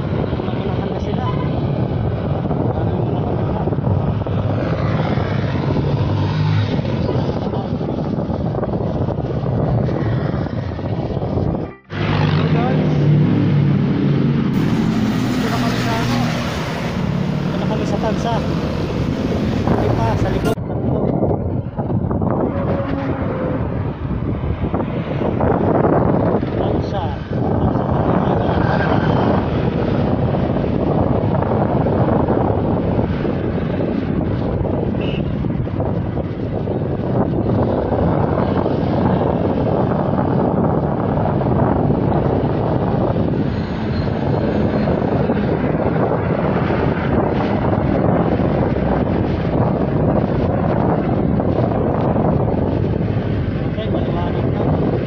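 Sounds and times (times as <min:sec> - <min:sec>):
road traffic rushing: 0:00.0 - 0:20.6, 0:21.4 - 0:55.0
wind: 0:00.0 - 0:55.0
vehicle engine hum: 0:03.2 - 0:26.1.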